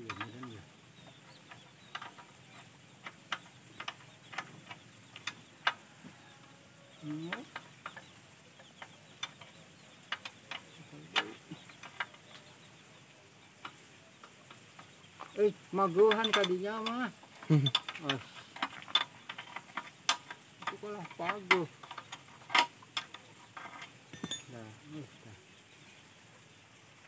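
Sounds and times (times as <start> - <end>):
spanner clicking on metal: 16.1 - 24.5.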